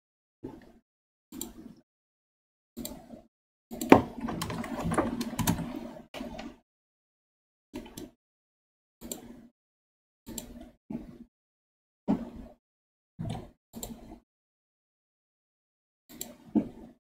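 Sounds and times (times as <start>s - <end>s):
computer keyboard typing: 3.9s - 5.8s.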